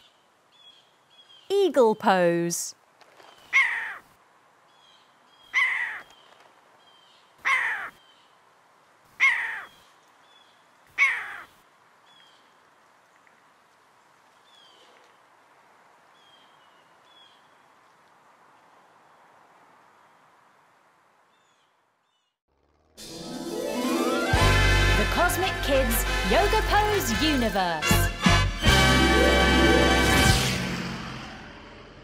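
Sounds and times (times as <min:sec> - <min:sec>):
harsh eagle calls: 0:03.4 - 0:04.1, 0:05.4 - 0:06.2, 0:07.4 - 0:08.0, 0:09.1 - 0:09.8, 0:10.9 - 0:11.6.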